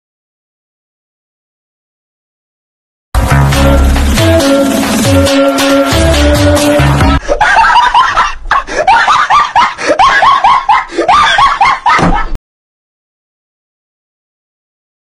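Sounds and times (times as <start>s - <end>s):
background music: 3.2s - 7.2s
high-pitched voice laughing: 7.2s - 12.3s.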